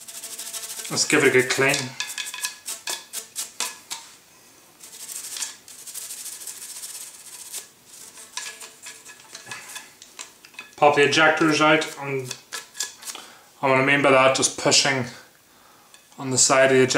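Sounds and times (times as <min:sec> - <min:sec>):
toothbrush scrubbing metal: 0:00.0 - 0:04.1, 0:04.8 - 0:09.9, 0:10.5 - 0:13.1.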